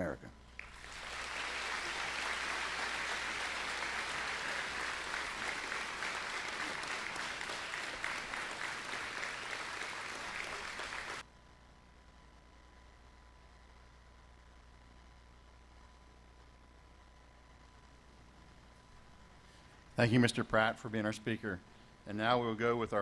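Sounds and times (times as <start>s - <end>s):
audience applauding: 0.6s - 11.2s.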